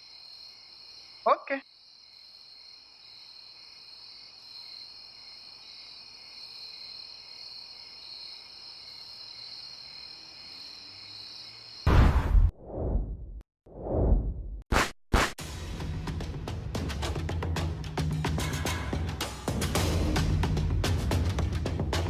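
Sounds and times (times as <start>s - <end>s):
crickets chirping: 0.0s - 11.9s.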